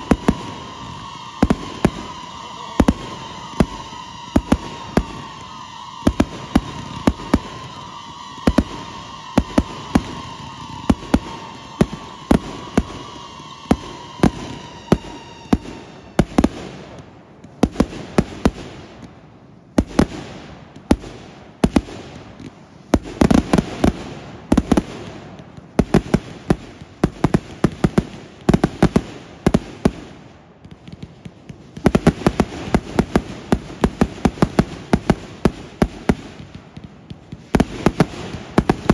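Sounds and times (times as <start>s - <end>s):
high falling whistle: 0.0s - 18.4s
fireworks bangs: 0.0s - 38.9s
fireworks crackling: 0.0s - 38.9s.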